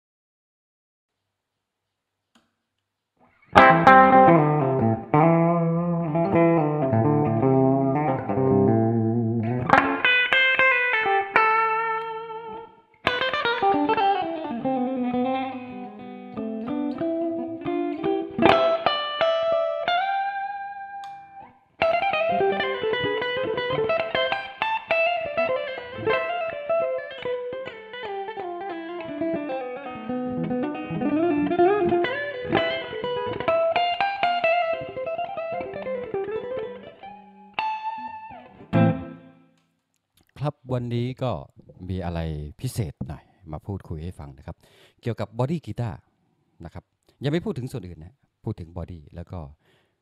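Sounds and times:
electric guitar lead melody: 3.5s - 39.6s.

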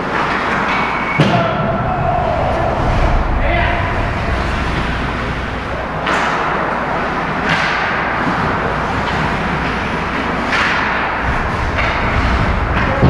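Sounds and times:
skate blades scraping ice: 4.5s - 13.0s.

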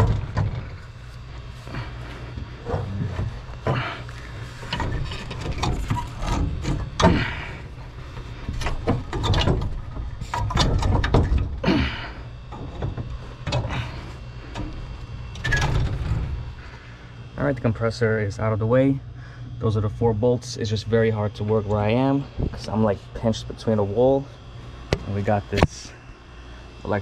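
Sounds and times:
metal compressor knocking and scraping: 0.0s - 11.6s.

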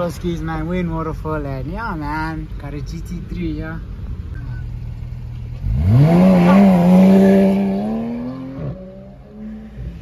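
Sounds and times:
car engine revving: 4.7s - 10.0s.

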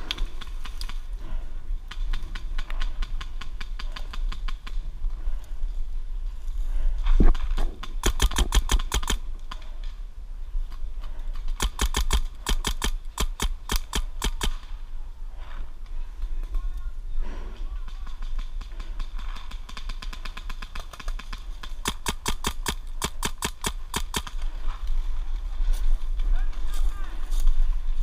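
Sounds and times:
paintball marker firing: 7.6s - 9.2s, 11.5s - 14.7s, 17.9s - 24.4s.

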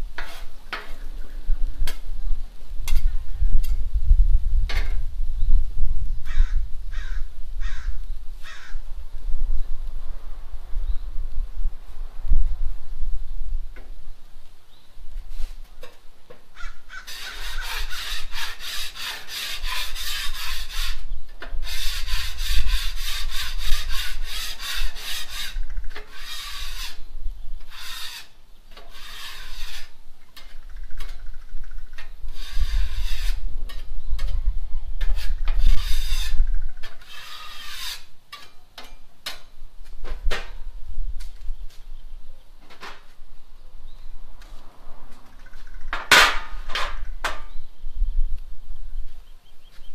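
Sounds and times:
scraper rasping on steel griddle: 0.2s - 1.0s, 17.0s - 21.0s, 21.6s - 27.0s, 27.7s - 30.0s, 32.3s - 33.9s, 35.0s - 39.0s.

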